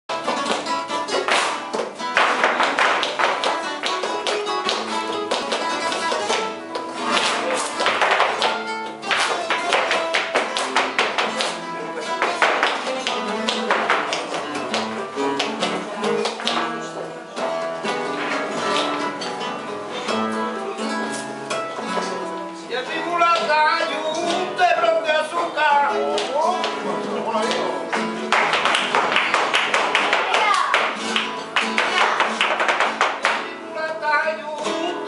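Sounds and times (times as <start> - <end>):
rapid percussive footwork: 0.1 - 17.0, 27.4 - 33.6
rhythmic handclaps: 0.1 - 17.1, 26.0 - 33.6
acoustic guitars playing: 0.1 - 35.0.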